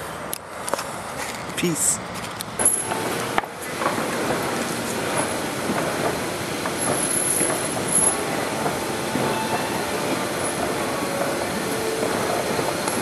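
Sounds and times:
escalator squealing: 6.8s - 13.0s.

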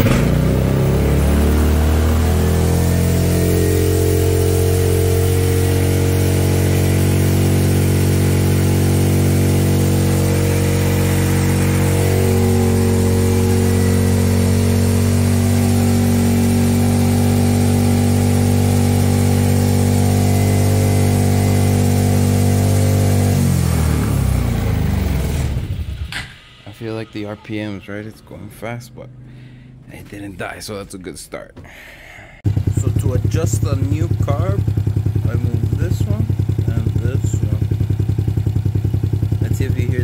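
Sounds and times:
go-kart engine running fast: 0.0s - 26.1s, 32.5s - 40.0s.

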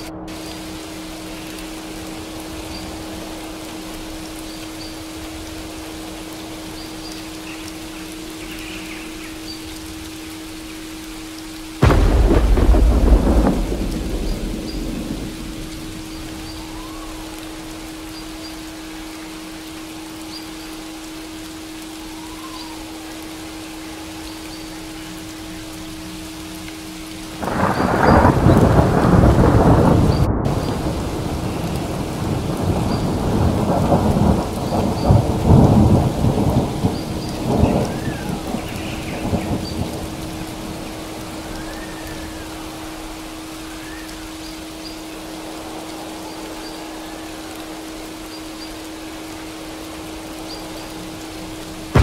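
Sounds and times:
steady rainfall: 0.0s - 52.0s
thunder rumbling: 11.8s - 18.4s, 27.2s - 44.0s, 49.9s - 52.0s.

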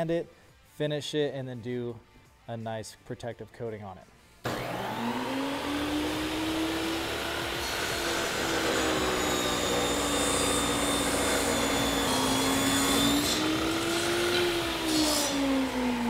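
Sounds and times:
table saw motor whine: 4.5s - 16.0s
saw blade hissing in wood: 7.2s - 15.8s.

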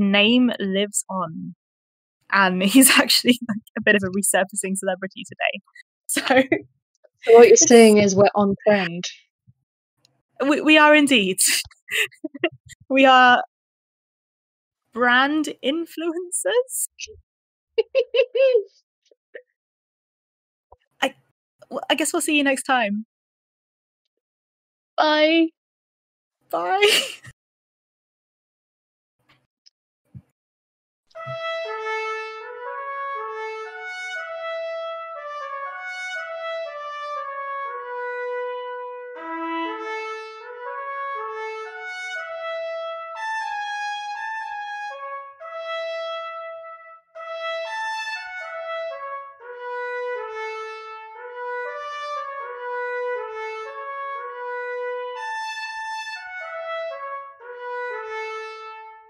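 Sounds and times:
instrumental music: 31.2s - 59.0s.

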